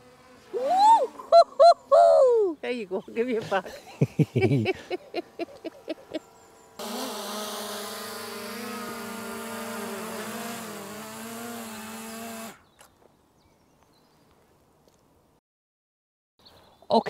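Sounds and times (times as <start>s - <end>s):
drone propellers whirring: 4.1s - 12.6s.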